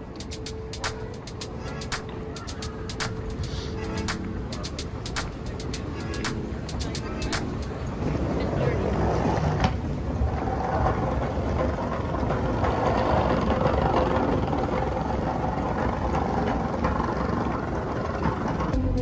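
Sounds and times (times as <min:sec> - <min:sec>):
airport terminal hum and rumble: 0:00.0 - 0:19.0.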